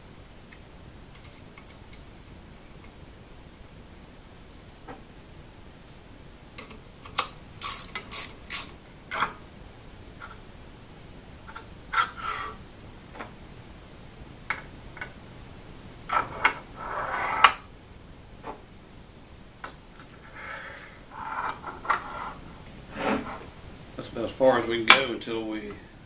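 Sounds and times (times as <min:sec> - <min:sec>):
bearing blocks sliding on rails: 0:11.4 - 0:12.6, 0:16.1 - 0:17.7, 0:20.0 - 0:23.5
metal scrape: 0:11.9 - 0:12.6, 0:16.1 - 0:17.6, 0:20.1 - 0:23.5.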